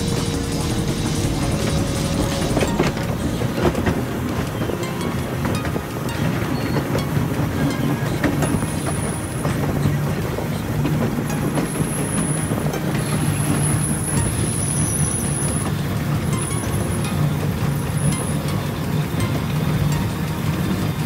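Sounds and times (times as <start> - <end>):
thin high whines: 0.0 - 10.2
rail car wheels rumbling: 0.0 - 21.0.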